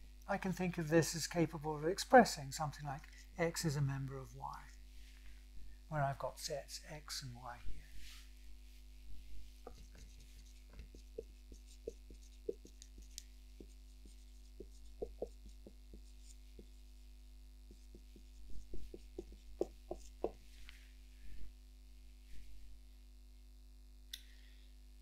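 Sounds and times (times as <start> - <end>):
electrical hum: 0.0 - 25.0
light taps and knocks: 10.7 - 16.8, 17.7 - 20.4.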